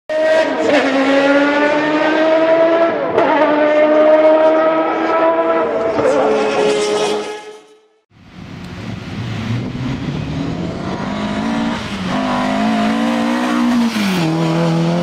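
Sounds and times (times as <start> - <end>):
race car engine at high revs: 0.1 - 7.3, 8.4 - 15.0.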